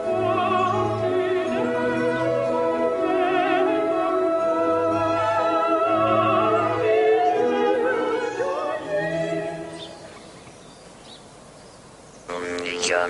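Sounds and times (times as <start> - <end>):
operatic singing: 0.0 - 10.0
faint background hiss: 0.0 - 13.0.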